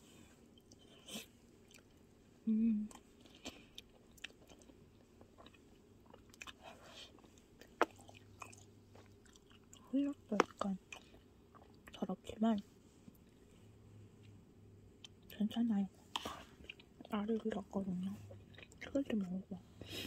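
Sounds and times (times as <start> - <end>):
person chewing food: 0.4 - 2.1, 2.9 - 12.0, 16.1 - 17.2, 18.0 - 19.3
person humming: 2.4 - 3.0.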